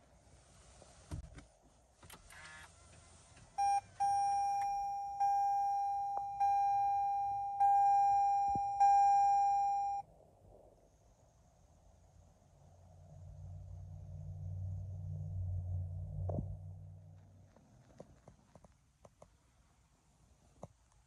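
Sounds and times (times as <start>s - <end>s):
ringing warning chime: 3.6s - 10.0s
short beep: 3.6s - 10.0s.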